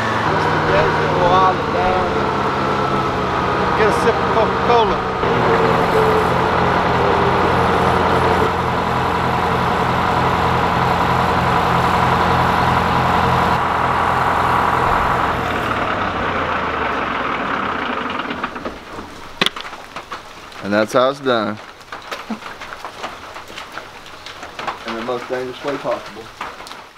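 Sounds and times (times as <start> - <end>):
diesel engine low pulsing: 0.0 - 19.4.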